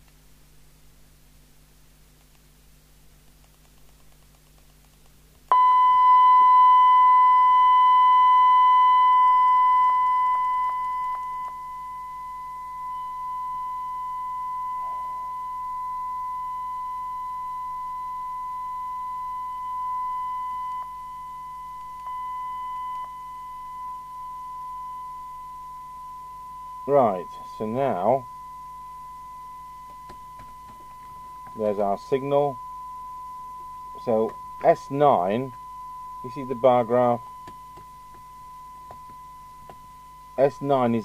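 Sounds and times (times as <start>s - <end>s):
faint clicks: 2.2s - 2.5s, 3.2s - 5.5s
radio test tone: 5.5s - 41.0s.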